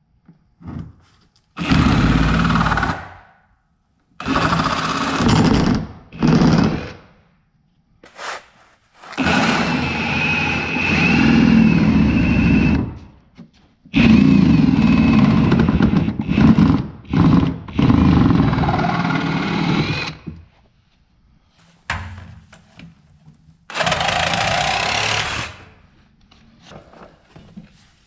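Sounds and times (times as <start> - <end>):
reciprocating saw cutting metal: 9.2 - 11.7.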